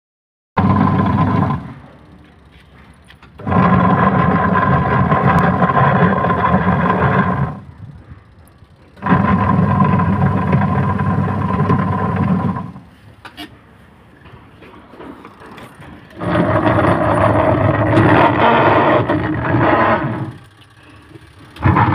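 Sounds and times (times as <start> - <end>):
washing machine motor humming: 0.6 - 13.0, 14.0 - 21.9.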